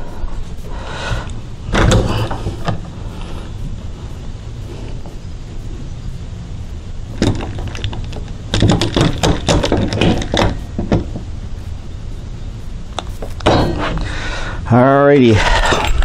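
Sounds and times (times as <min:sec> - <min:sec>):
steady low hum: 0:00.0 - 0:16.0
wood and clamp knocks and clicks: 0:07.2 - 0:11.3.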